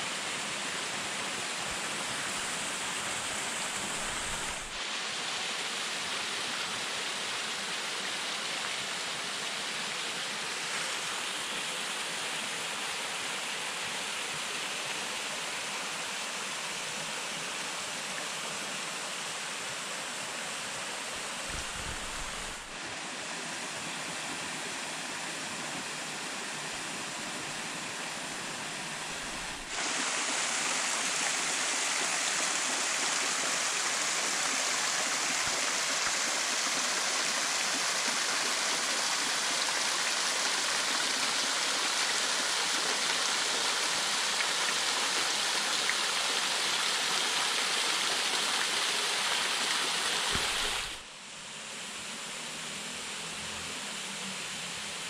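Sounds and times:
rushing waterfall and stream: 0.0s - 55.0s.

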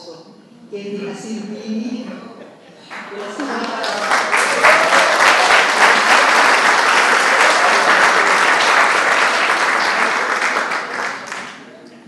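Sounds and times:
audience applauding: 2.9s - 11.8s.

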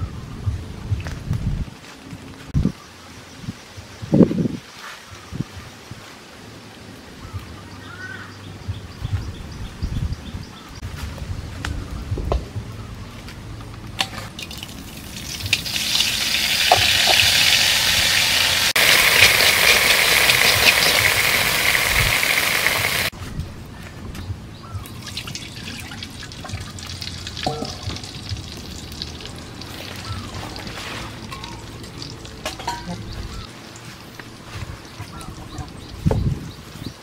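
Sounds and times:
wok sizzling: 14.3s - 23.2s, 25.1s - 33.8s.

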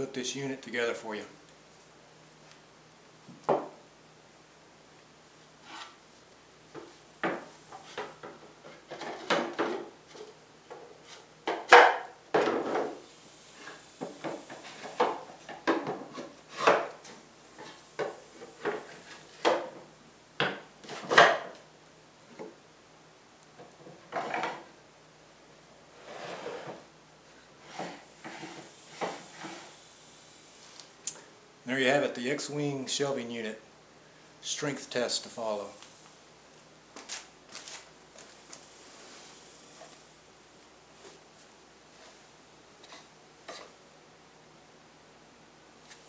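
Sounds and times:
wooden panels scraping: 13.6s - 19.8s.

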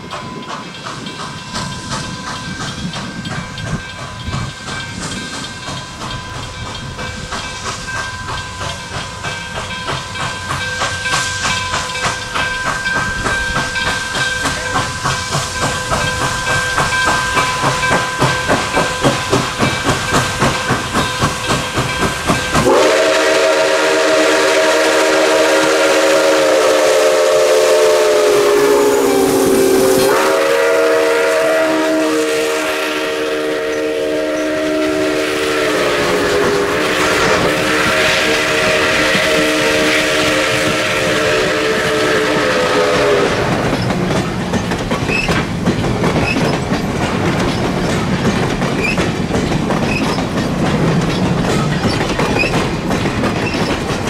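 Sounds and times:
steam locomotive chuffing: 0.0s - 54.0s
steam whistle: 22.6s - 44.0s.

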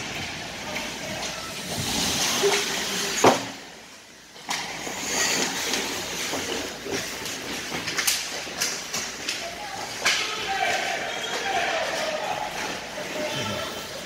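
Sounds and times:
skates scraping ice: 0.0s - 14.0s
hockey sticks clacking: 4.4s - 14.0s.

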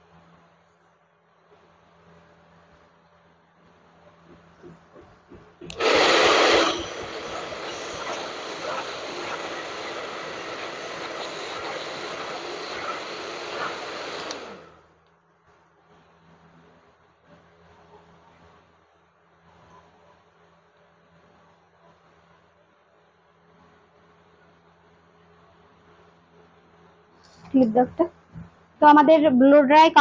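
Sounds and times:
hair dryer blowing: 5.7s - 14.7s.

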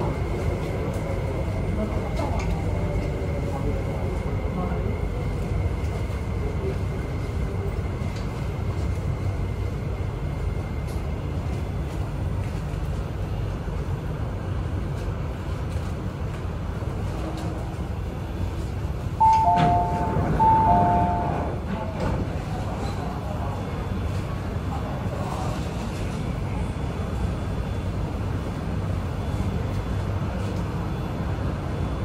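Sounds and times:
train interior running rumble: 0.0s - 32.0s
two-note electronic door chime: 19.2s - 21.4s.

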